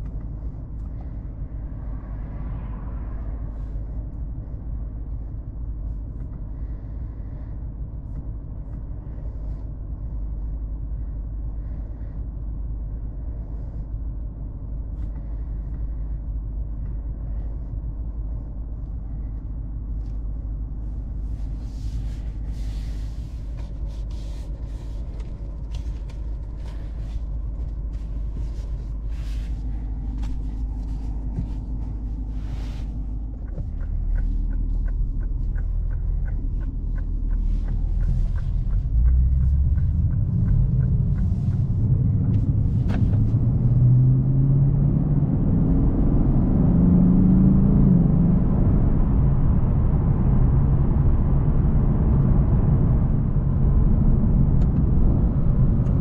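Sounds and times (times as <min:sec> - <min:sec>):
car engine rumble from cabin: 0:00.0 - 0:56.0
light evenly spaced ticks: 0:31.9 - 0:42.5.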